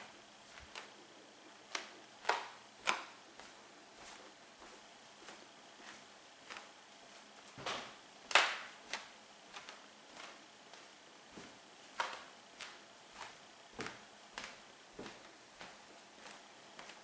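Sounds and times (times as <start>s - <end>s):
floorboards cracking under footsteps: 1.7s - 17.0s.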